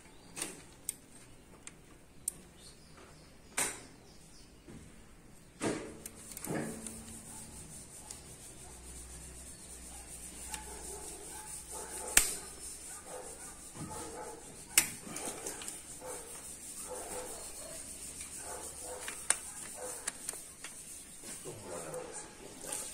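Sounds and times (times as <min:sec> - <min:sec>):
light knocks and rubbing: 0:05.6 - 0:22.9.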